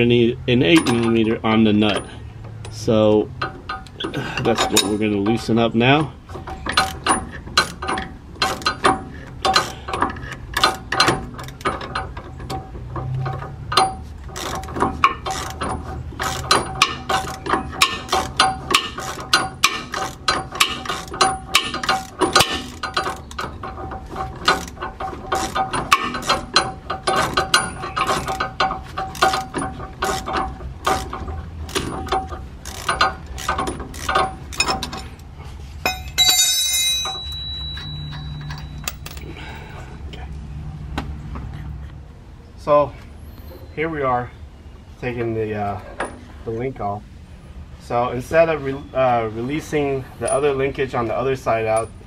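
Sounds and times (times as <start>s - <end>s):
hand ratchet clicking: 13.7s - 35.0s.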